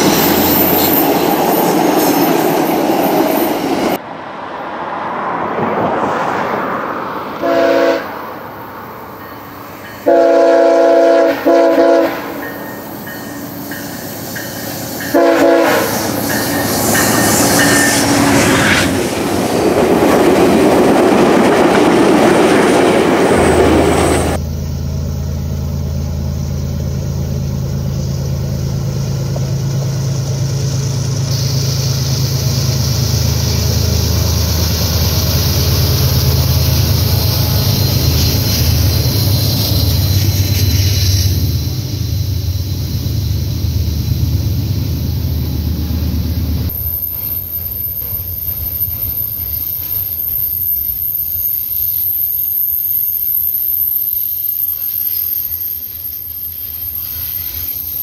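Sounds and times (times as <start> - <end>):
low drone of diesel locomotives: 0.0 - 58.0
train rushing past: 0.0 - 58.0
locomotive horn blasts: 7.4 - 8.3, 10.0 - 12.6, 15.1 - 16.2.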